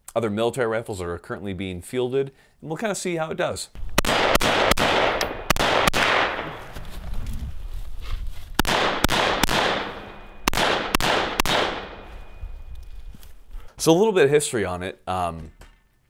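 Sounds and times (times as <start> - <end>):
rifle shots echoing: 3.8 - 6.7, 8.6 - 12.4.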